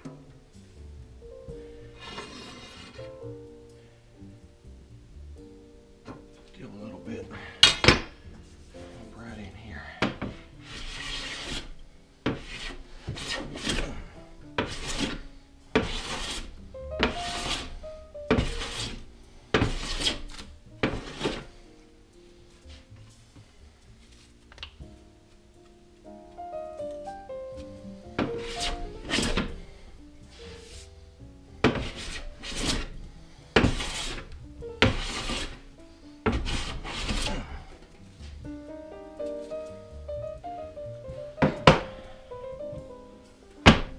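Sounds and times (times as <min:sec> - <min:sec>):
faint background music: 0:00.0 - 0:43.9
hand plane shaving wood: 0:02.0 - 0:03.0, 0:10.7 - 0:11.7, 0:12.3 - 0:15.2, 0:15.8 - 0:17.8, 0:18.4 - 0:19.0, 0:19.6 - 0:21.5, 0:28.2 - 0:29.6, 0:31.7 - 0:32.9, 0:33.6 - 0:35.6, 0:36.3 - 0:37.6.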